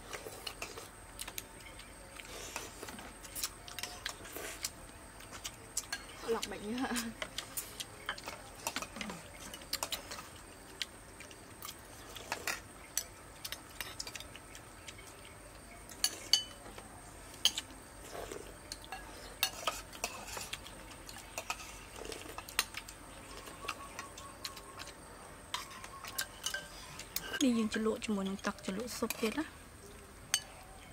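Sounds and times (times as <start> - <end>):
spoons clinking on porcelain bowls: 16.0 - 16.7, 18.7 - 20.5, 21.1 - 27.4.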